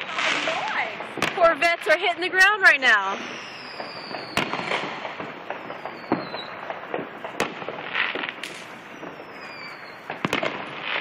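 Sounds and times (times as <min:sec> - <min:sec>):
firework bangs: 0:00.0 - 0:11.0
firework crackling: 0:00.0 - 0:11.0
falling firework whistle: 0:03.1 - 0:10.7.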